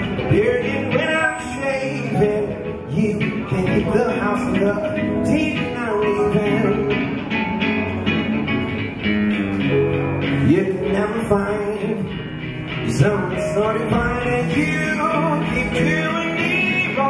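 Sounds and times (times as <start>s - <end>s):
man singing: 0.0s - 7.6s, 10.3s - 17.0s
nylon-string guitar: 0.0s - 17.0s.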